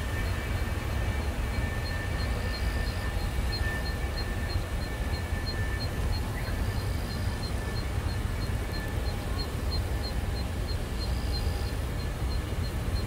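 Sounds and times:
distant jet engines rumbling: 0.0s - 13.0s.

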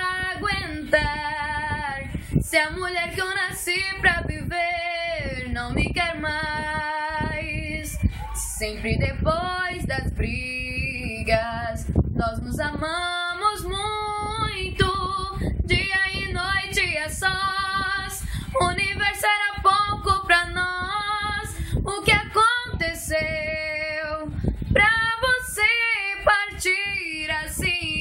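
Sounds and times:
woman singing unaccompanied: 0.0s - 28.0s.

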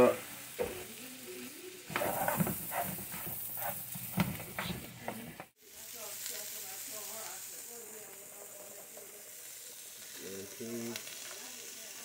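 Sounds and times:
vegetables sizzling in frying pan: 0.0s - 12.0s
spatula stirring and scraping: 1.9s - 5.6s.

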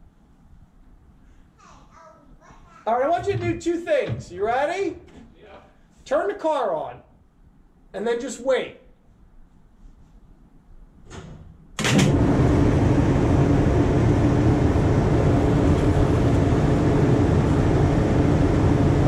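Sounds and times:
electrical machinery humming: 11.8s - 19.0s.

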